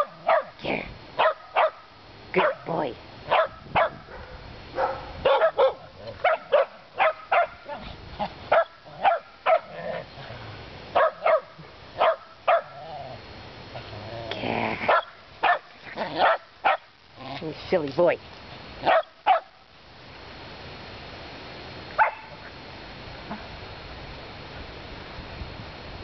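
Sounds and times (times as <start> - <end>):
dog barking: 0.0 - 0.6, 1.2 - 1.8, 2.4 - 2.6, 3.3 - 7.8, 8.5 - 9.8, 11.0 - 12.8, 14.9 - 16.9, 18.8 - 19.6, 22.0 - 22.4.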